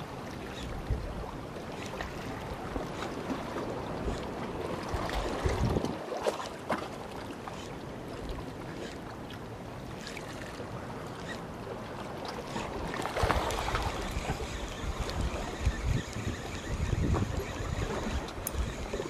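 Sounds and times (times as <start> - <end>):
wind blowing over microphone: 4.9 - 6.0, 13.2 - 19.0
faint ticks: 14.1 - 18.9.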